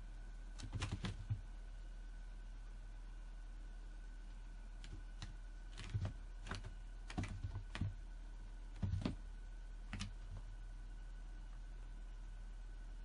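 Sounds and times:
cat paws tapping on floor: 4.8 - 8.0, 8.8 - 9.2.

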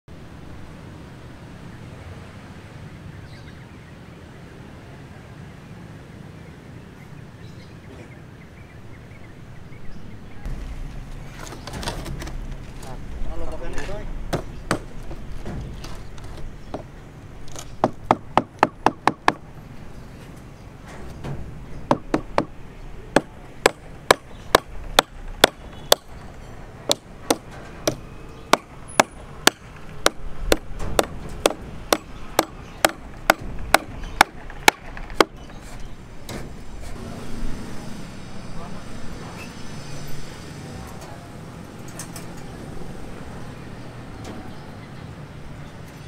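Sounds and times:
hand hammer striking: 17.8 - 19.4, 21.9 - 22.5, 23.2 - 26.1, 26.9 - 35.4.

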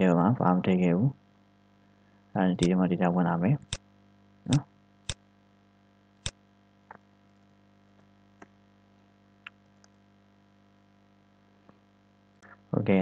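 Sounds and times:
faint electrical hum: 0.0 - 13.0
computer mouse and keyboard clicks: 9.5 - 10.0.

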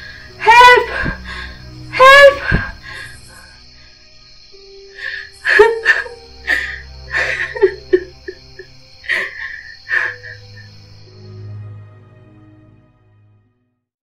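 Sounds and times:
faint music drone: 0.0 - 13.6
woman whimpering in pain: 5.0 - 10.6.

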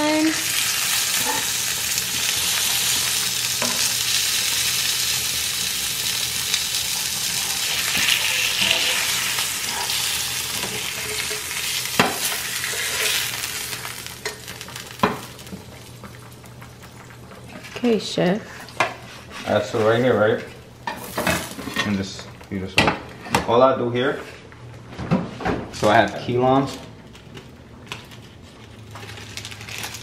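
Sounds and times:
fish sizzling in frying pan: 0.0 - 19.3, 29.1 - 30.0.

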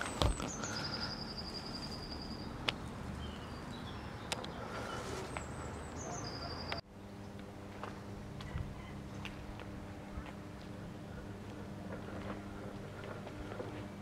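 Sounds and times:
songbird singing trill: 0.0 - 7.4
low hum: 6.7 - 14.0.

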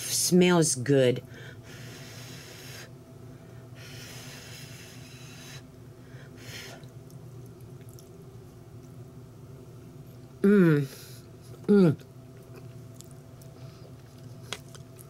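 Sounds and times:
steady low hum: 0.0 - 15.0
person breathing close: 1.3 - 6.8.

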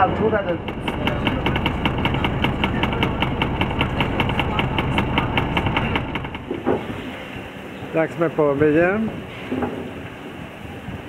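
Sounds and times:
coach engine rumble: 0.0 - 11.0
rapid even ticking: 0.4 - 6.6.

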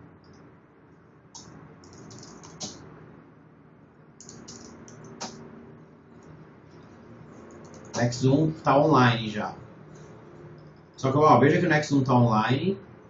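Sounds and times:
hard key press: 1.4 - 2.8
typing on computer keyboard: 1.4 - 2.8, 4.2 - 5.4, 7.5 - 8.0.

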